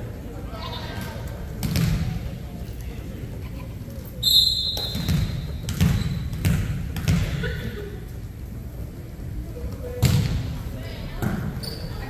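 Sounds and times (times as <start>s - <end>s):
volleyball thumping: 1.6s - 2.2s, 4.7s - 7.5s
referee's whistle blast: 4.2s - 5.1s.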